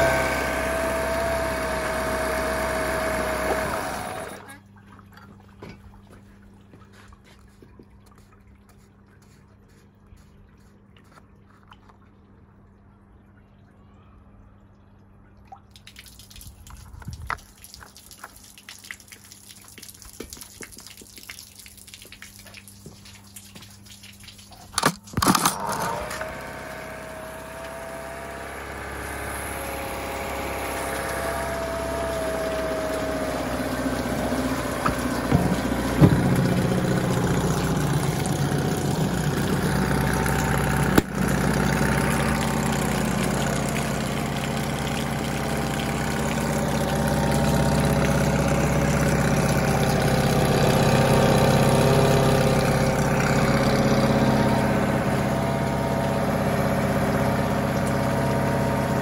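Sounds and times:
outboard engine running: 0.0 - 8.3, 25.2 - 59.0.

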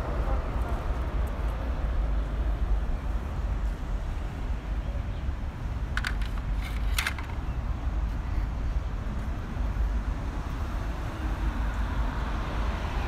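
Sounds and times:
low outdoor rumble: 0.0 - 12.7
crackling rustles: 6.0 - 7.5.

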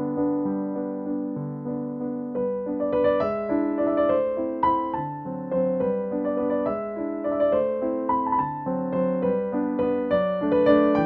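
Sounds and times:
soft piano music: 0.0 - 11.0.

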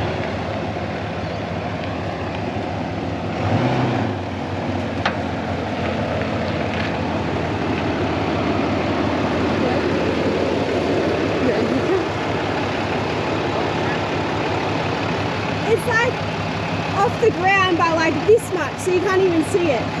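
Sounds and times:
road noise: 0.0 - 20.0
vehicle engine hum: 0.0 - 20.0.

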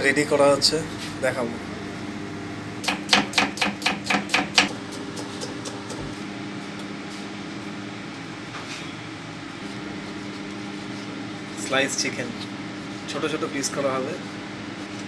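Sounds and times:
steady mechanical hum: 0.0 - 15.0
knife chopping on wooden board: 2.8 - 6.1.

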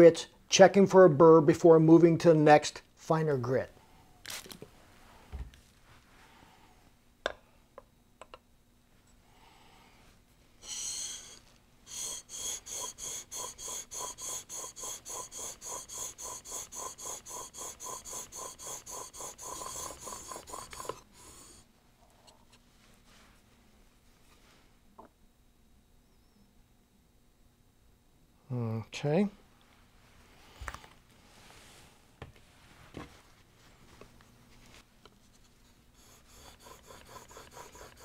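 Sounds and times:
blade scraping on whetstone: 12.8 - 21.1, 36.0 - 38.0.

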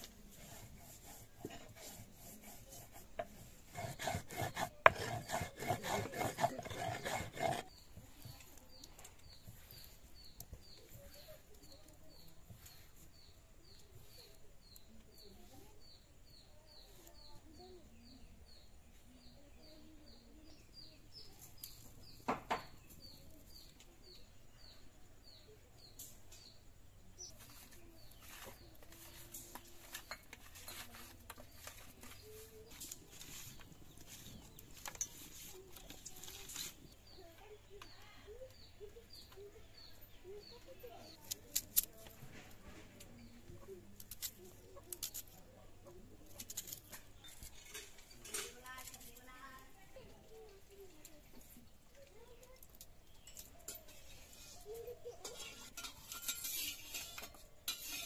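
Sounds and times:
stone grinding rasping: 0.3 - 7.8, 53.7 - 58.0.

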